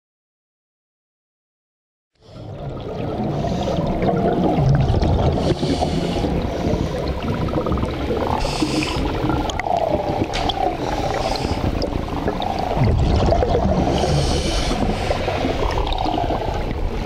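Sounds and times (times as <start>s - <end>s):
exhaled bubbles gurgling: 2.2s - 17.0s
scuba regulator hissing inhalation: 5.3s - 7.0s, 8.4s - 9.3s, 10.7s - 12.0s, 13.8s - 15.5s.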